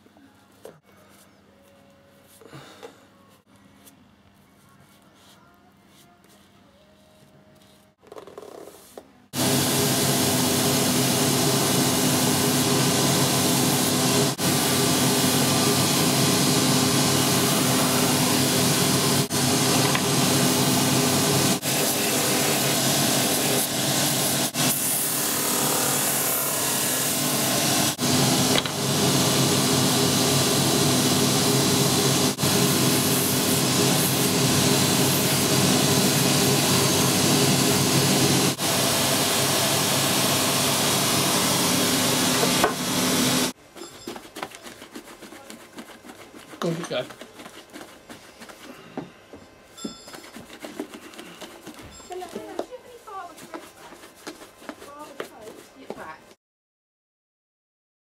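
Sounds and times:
brushes buffing leather sole: 0:28.8 - 0:38.7, 0:41.9 - 0:48.9, 0:50.1 - 0:56.2.

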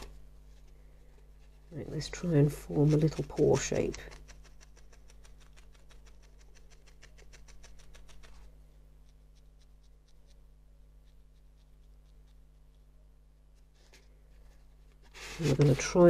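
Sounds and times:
felting needle jabbing foam: 0:00.0 - 0:12.8.

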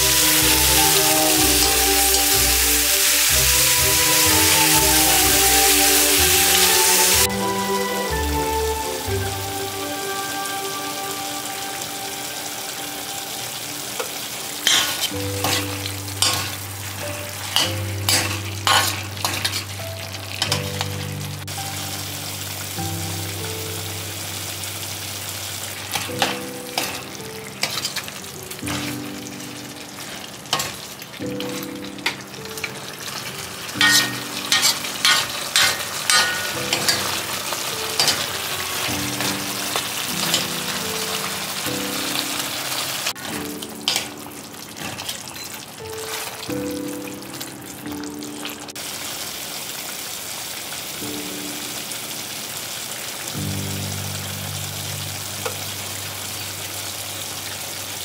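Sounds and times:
chicken sizzling in a pan: 0:00.0 - 0:07.3, 0:08.6 - 0:58.0
metal spoon scraping pan: 0:17.6 - 0:19.6, 0:27.6 - 0:28.0, 0:33.8 - 0:37.2.

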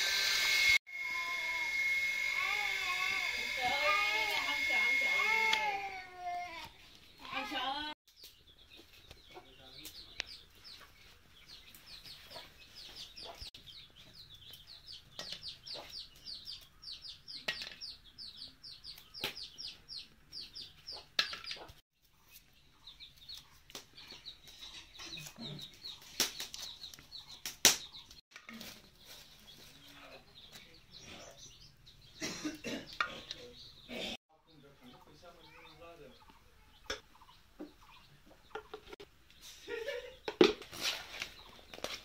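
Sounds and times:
chicks peeping: 0:08.2 - 0:32.2, 0:32.9 - 0:39.0, 0:41.3 - 0:41.9.

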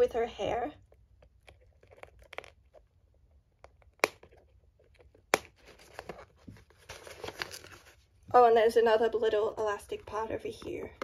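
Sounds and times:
packaging rustling: 0:03.7 - 0:08.1.

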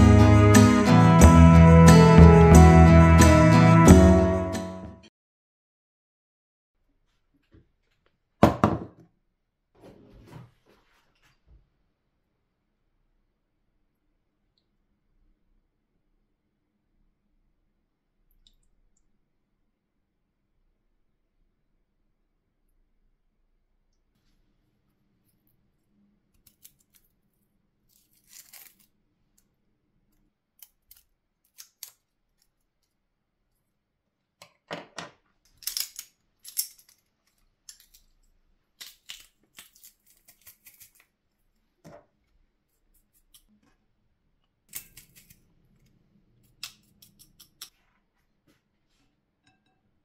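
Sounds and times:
knife scraping garlic clove: 0:27.9 - 0:28.9, 0:39.0 - 0:41.1, 0:44.7 - 0:45.5, 0:46.6 - 0:47.7
pepper mill grinding: 0:27.9 - 0:28.9, 0:44.7 - 0:45.4, 0:46.5 - 0:47.7.

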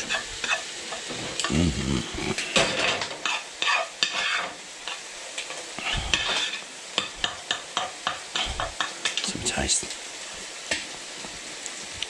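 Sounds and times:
spoon scraping and tapping pan: 0:00.0 - 0:01.2, 0:02.6 - 0:05.6, 0:06.2 - 0:09.3
eggs sizzling: 0:00.0 - 0:12.0.

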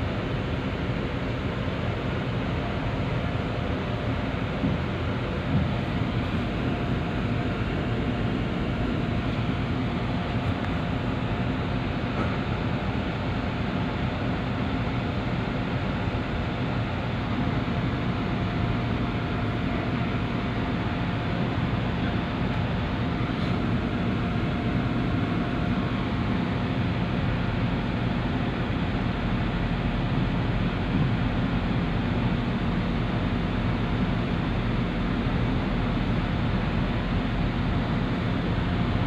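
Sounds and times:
ferry engine drone: 0:00.0 - 0:39.0
water rushing along hull: 0:00.0 - 0:39.0.

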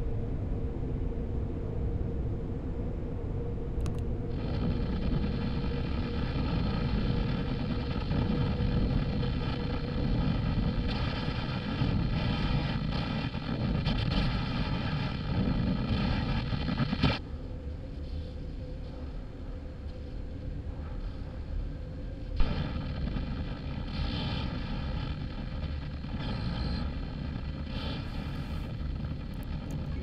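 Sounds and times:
deep rumbling drone: 0:00.0 - 0:30.0
faint steady hum: 0:00.0 - 0:30.0
click: 0:03.8 - 0:04.1
buzzing electronic tone: 0:22.4 - 0:30.0.

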